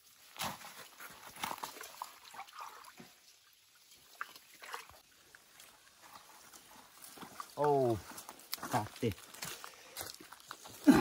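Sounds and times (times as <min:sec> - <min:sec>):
small splashes and drips: 0:00.2 - 0:08.6
hands sloshing in muddy water: 0:00.6 - 0:03.2, 0:04.1 - 0:07.6.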